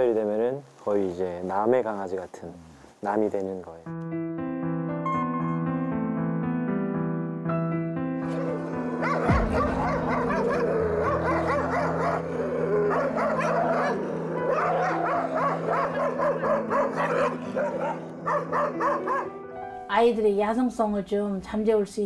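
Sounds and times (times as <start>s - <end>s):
background music: 3.1s - 22.0s
dogs barking and yelping: 8.2s - 19.4s.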